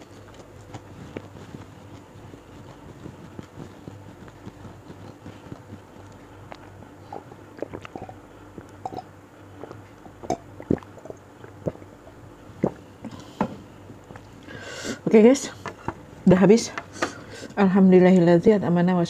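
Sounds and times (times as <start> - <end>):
woman sipping and swallowing water: 6.5 - 13.3
wet lip smacks and clicks: 7.5 - 8.8, 10.6 - 11.9.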